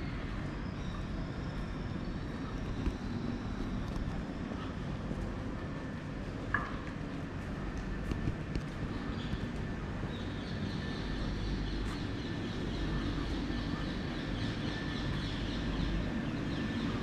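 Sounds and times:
low city hum: 0:00.0 - 0:17.0
birds chirping: 0:08.7 - 0:17.0.

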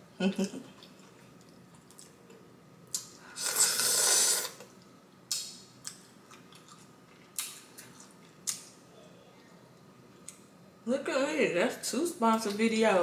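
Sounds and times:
wet slurp: 0:03.4 - 0:04.7
mouth smacks and clicks: 0:05.3 - 0:06.7.

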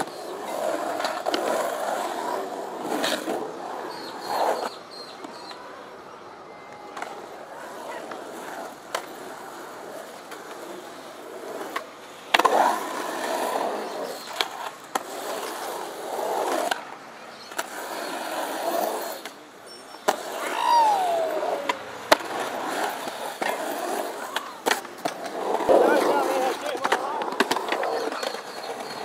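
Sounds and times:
skateboard clacks: 0:00.0 - 0:05.7, 0:06.6 - 0:29.0
skateboard wheels rolling on concrete: 0:00.0 - 0:29.0
short falling tone: 0:20.4 - 0:21.8.

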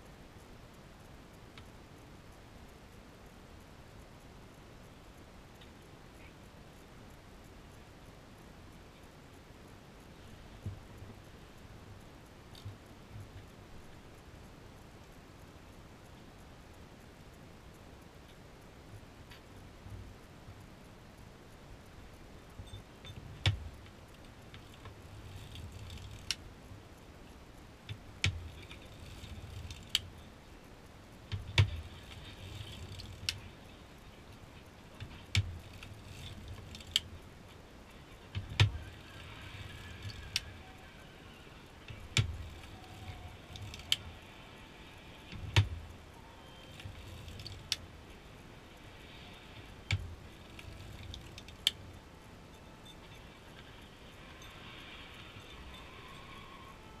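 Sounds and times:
sharp mechanical clicks: 0:00.0 - 0:57.0
knitting machine clattering: 0:22.7 - 0:30.5, 0:31.2 - 0:57.0.

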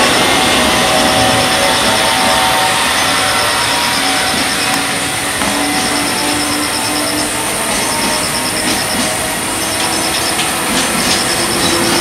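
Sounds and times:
freight train wheels on rails: 0:00.0 - 0:12.0
thin whining tones: 0:00.0 - 0:12.0.

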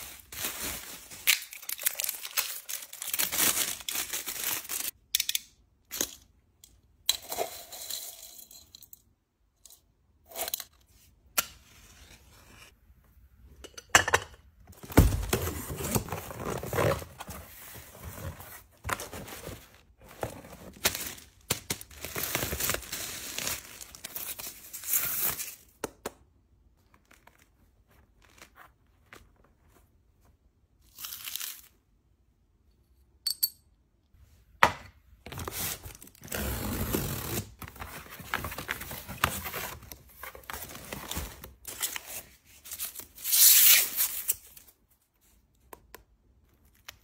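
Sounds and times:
paper and plastic wrapping crinkling: 0:00.0 - 0:05.0
cardboard box opening: 0:14.8 - 0:20.8.

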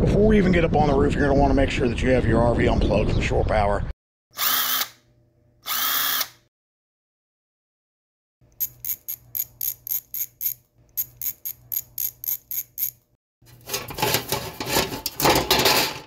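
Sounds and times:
screwdriver metallic clicks: 0:08.6 - 0:13.0
metal box rustling scrape: 0:13.4 - 0:16.0.

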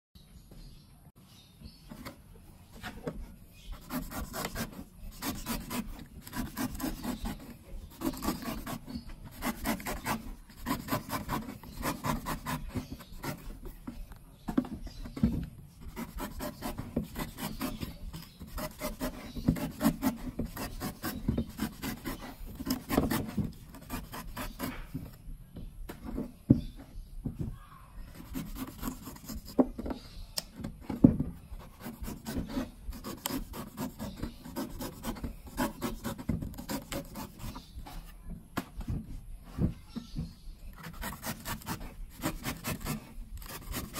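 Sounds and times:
knife shaving coconut husk: 0:03.7 - 0:13.5, 0:15.9 - 0:24.8, 0:31.6 - 0:37.7, 0:40.8 - 0:43.9.

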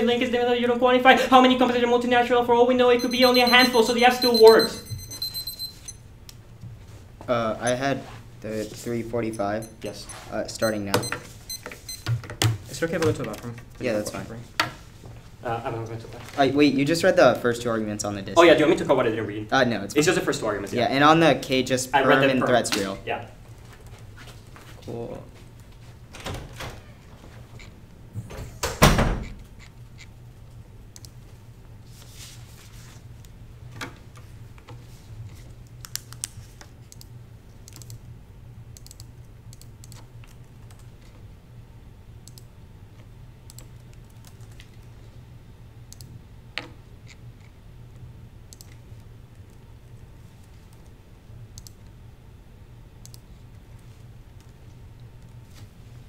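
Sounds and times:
typing on laptop keyboard: 0:43.5 - 0:44.8.

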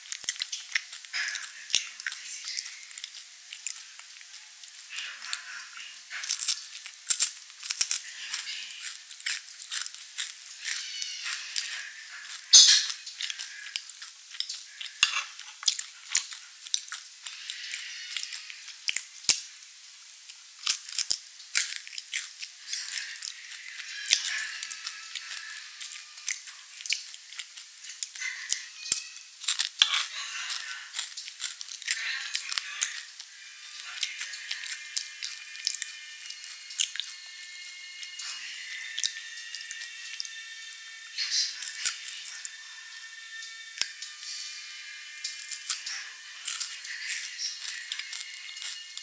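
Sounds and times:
cookies being chewed and crunched: 0:00.0 - 0:49.0.

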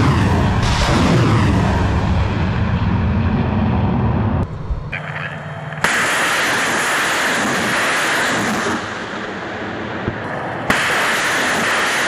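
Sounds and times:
rocket launch rush: 0:00.0 - 0:04.2, 0:05.8 - 0:09.3, 0:10.7 - 0:12.0
low rumble: 0:00.0 - 0:06.8.

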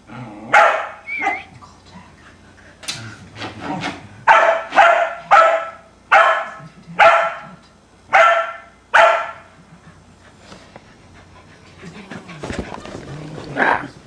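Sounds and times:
dog barking: 0:00.5 - 0:01.4, 0:04.3 - 0:07.5, 0:08.1 - 0:09.5.

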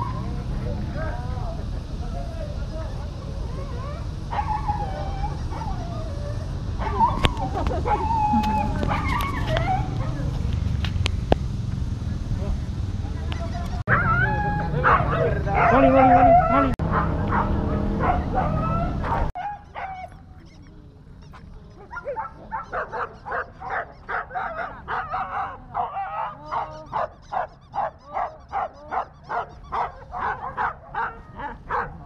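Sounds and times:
loud jumble of sound: 0:00.0 - 0:32.0
dog barking: 0:03.8 - 0:10.3, 0:14.8 - 0:20.6, 0:21.3 - 0:32.0.

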